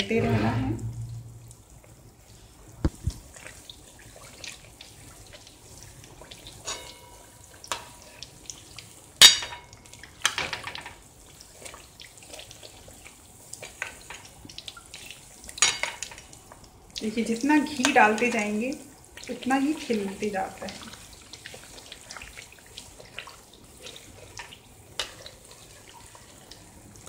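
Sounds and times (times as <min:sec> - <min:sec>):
faint steady sizzle of frying: 0:01.2 - 0:27.0
ladle clinking against pan: 0:06.7 - 0:07.2.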